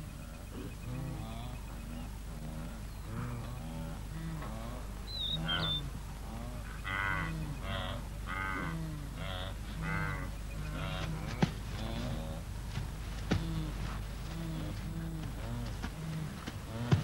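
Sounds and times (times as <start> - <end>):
wildebeest herd calling: 0.0 - 12.6, 13.3 - 17.0
high bird chirp: 5.1 - 5.9.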